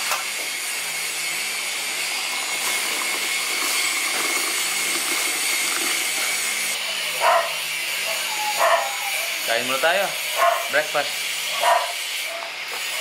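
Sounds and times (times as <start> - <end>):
hot-water pot motor whirring: 0.0 - 10.4
water pouring into mug: 2.0 - 6.8.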